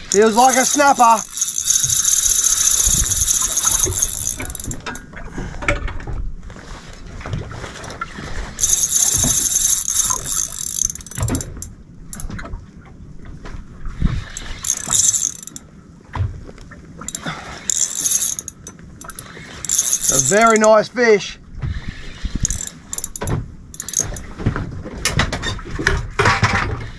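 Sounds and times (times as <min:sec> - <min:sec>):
fishing reel buzzing: 0:00.0 - 0:05.0, 0:08.6 - 0:12.3, 0:14.3 - 0:15.6, 0:17.1 - 0:20.8, 0:22.0 - 0:24.2.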